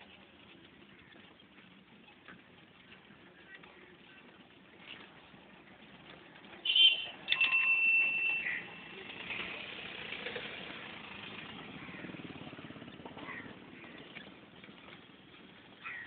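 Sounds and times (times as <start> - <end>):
moving vehicle running: 0.0 - 16.0
car horn blasts: 6.6 - 7.5.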